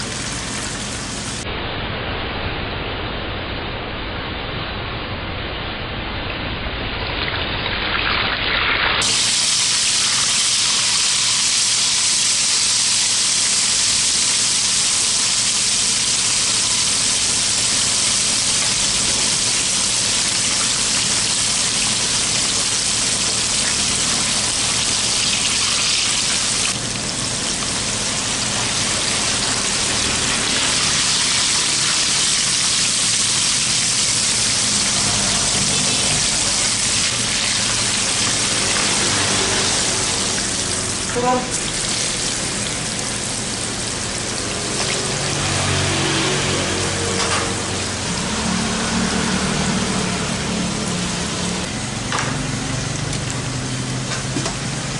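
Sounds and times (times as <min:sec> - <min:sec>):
fish sizzling in hot oil: 0:00.0 - 0:01.5, 0:07.3 - 0:54.9.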